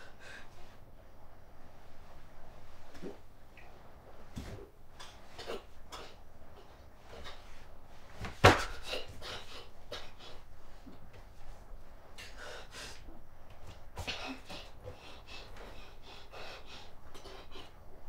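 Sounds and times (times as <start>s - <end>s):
woman breathing unevenly: 0.0s - 0.9s, 12.2s - 13.2s, 14.0s - 18.0s.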